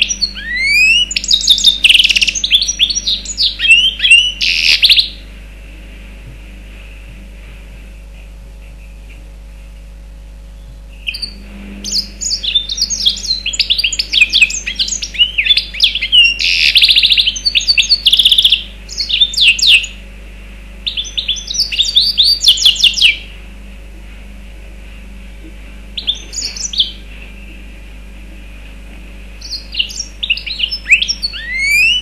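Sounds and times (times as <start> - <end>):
bird singing chirps and trills: 0.0 - 5.3, 8.2 - 20.0, 20.8 - 23.4, 25.8 - 28.2, 29.2 - 32.0.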